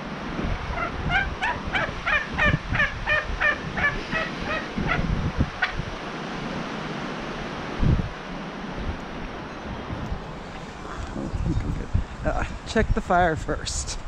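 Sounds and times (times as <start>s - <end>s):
fowl calling: 0.7s - 5.8s, 10.7s - 11.4s.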